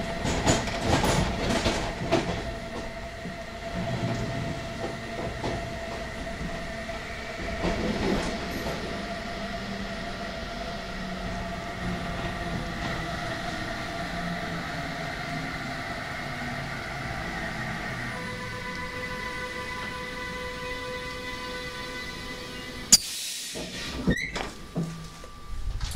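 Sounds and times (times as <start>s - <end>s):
wheels clicking over rail joints: 0.0s - 6.7s
train running noise inside coach: 0.0s - 25.9s.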